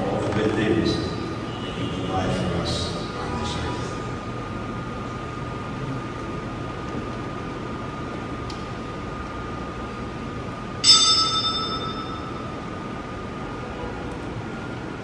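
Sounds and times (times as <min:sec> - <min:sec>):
faint high hum: 0:00.0 - 0:15.0
small metal bell ringing: 0:10.8 - 0:12.4.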